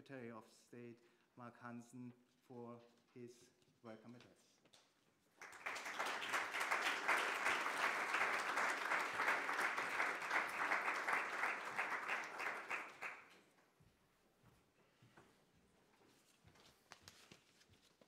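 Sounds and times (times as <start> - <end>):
audience applause: 5.4 - 13.4.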